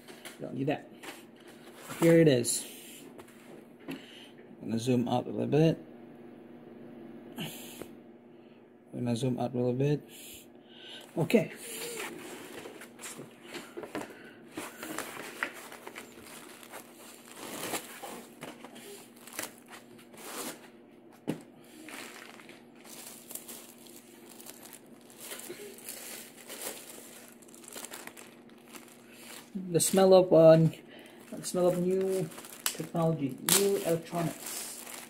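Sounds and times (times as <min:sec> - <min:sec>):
plastic bag crinkling: 0:14.8 - 0:20.6, 0:21.7 - 0:30.1, 0:31.0 - 0:35.0.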